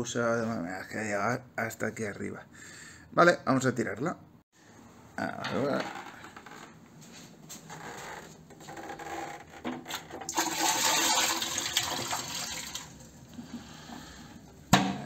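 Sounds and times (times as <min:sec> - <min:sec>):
water pouring into toilet bowl: 0:10.1 - 0:13.4.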